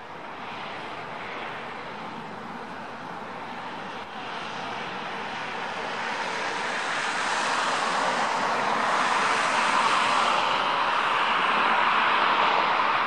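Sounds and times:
jet engine rushing noise: 5.8 - 13.0.

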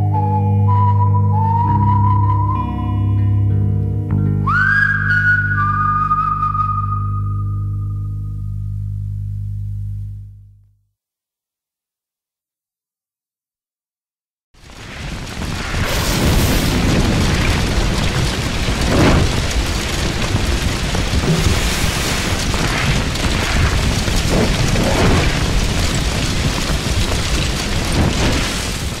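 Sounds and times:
low rumbling roar: 15.4 - 29.0.

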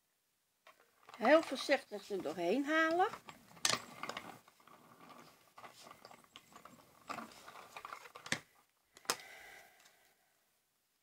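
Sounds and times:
plastic plates clacking: 0.7 - 9.3
crank machine rollers creaking: 1.1 - 8.0.

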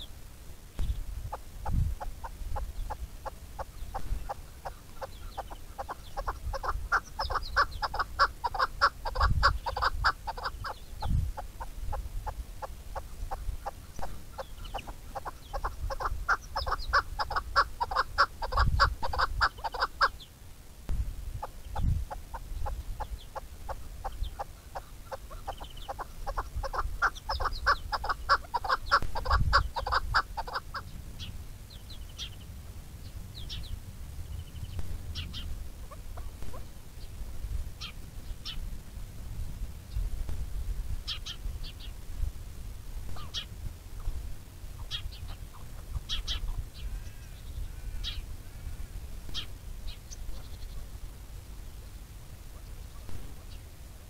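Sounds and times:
small birds chirping: 0.0 - 20.5, 21.3 - 38.7, 41.0 - 42.0, 43.0 - 53.9
wind rumble on microphone: 0.7 - 20.0, 20.9 - 24.4, 25.2 - 54.0
partridge clucking calls: 0.8 - 20.3, 21.4 - 32.4, 34.8 - 36.8, 37.8 - 38.6, 43.1 - 44.2, 44.8 - 48.6, 49.2 - 51.0.

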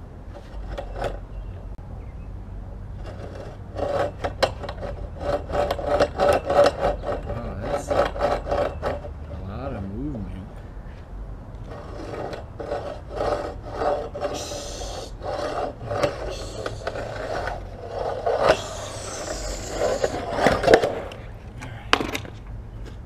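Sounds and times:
skateboard scraping on ledge: 3.0 - 10.0, 11.6 - 21.4.

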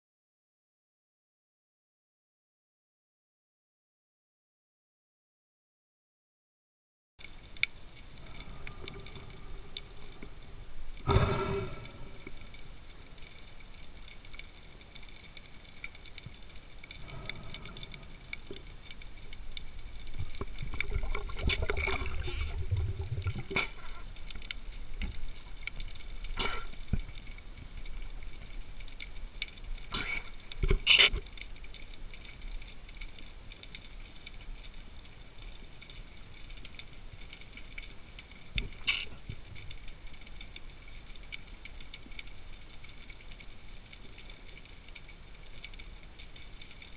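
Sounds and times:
faint underwater crackle and hiss: 7.2 - 46.9
gurgle of water bubbles: 20.1 - 24.2.

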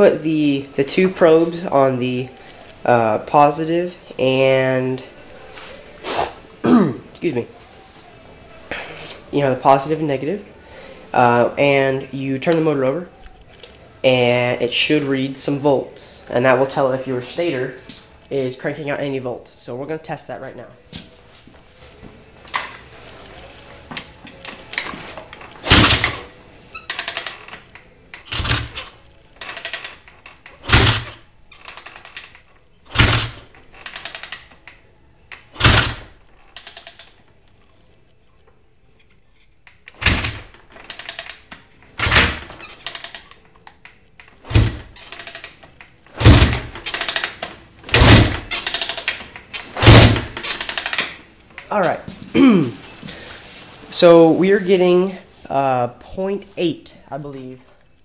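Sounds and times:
engine kick start clunks: 25.6 - 26.2, 28.2 - 28.9, 30.6 - 31.2, 32.9 - 34.2, 35.6 - 36.1, 40.0 - 41.4, 42.0 - 43.1, 46.2 - 49.1.

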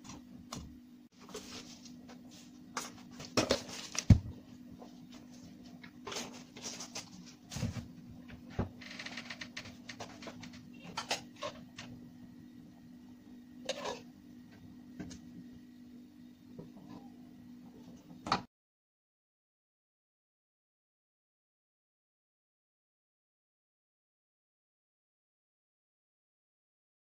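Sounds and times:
faint steady hum: 0.0 - 18.5
spoon clinking and scraping a pot: 13.6 - 14.1.

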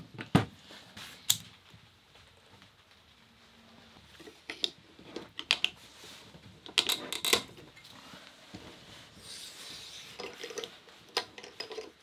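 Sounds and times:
heavy cable being handled: 3.9 - 12.0.

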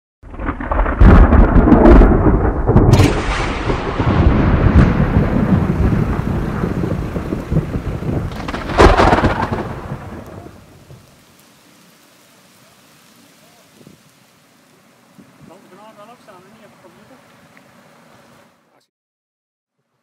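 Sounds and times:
sharp thunder crack: 0.2 - 11.0
thunder rumbling: 0.2 - 11.2
falling rain: 0.2 - 18.7.

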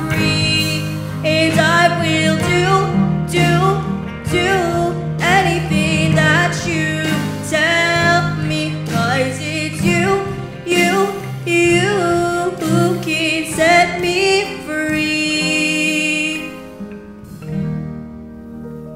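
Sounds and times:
instrumental accompaniment: 0.0 - 18.9.

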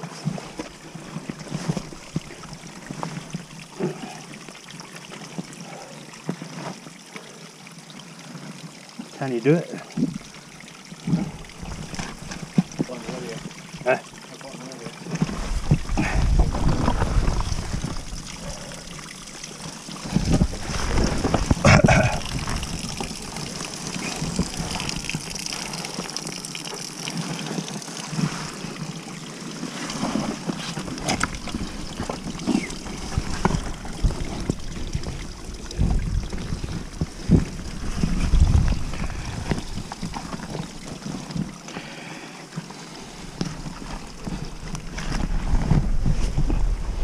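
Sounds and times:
water trickling over rock: 0.0 - 47.0
scrambling over rock: 15.1 - 26.1
wind buffeting microphone: 15.4 - 18.6, 31.2 - 40.8.

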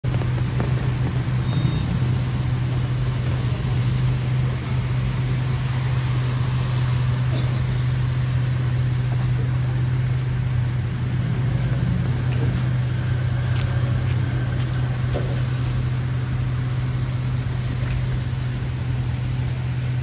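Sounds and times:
vehicle engines idling: 0.0 - 20.0.

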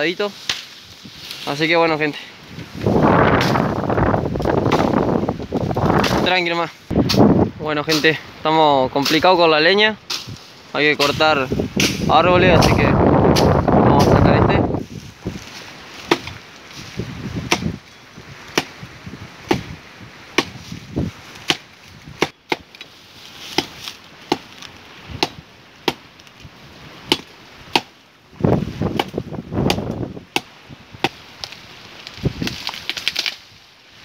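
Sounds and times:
wind buffeting microphone: 2.4 - 7.8, 10.2 - 15.5, 16.1 - 22.3, 28.3 - 31.0, 32.1 - 32.7
machete chopping tree trunk: 3.3 - 3.8, 4.6 - 5.0, 5.9 - 6.3, 7.0 - 7.3, 11.8 - 14.2, 16.0 - 16.4, 17.4 - 17.8, 18.5 - 18.8, 19.4 - 19.8, 20.4 - 20.7, 21.4 - 22.9, 23.5 - 24.6, 25.2 - 26.0, 27.1 - 28.0, 28.8 - 31.2.

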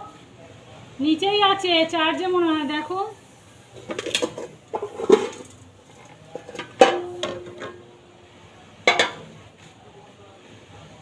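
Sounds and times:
ladle and lid clinking on pot: 3.8 - 7.9, 8.9 - 9.3.

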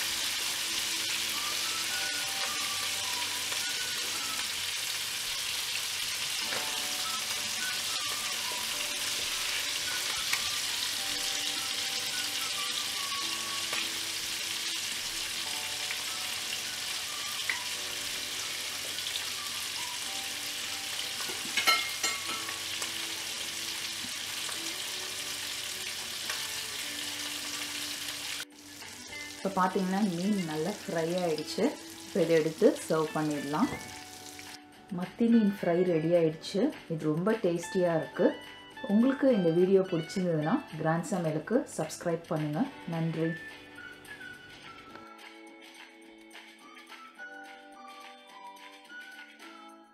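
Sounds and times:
fish sizzling in oil: 0.0 - 34.6.

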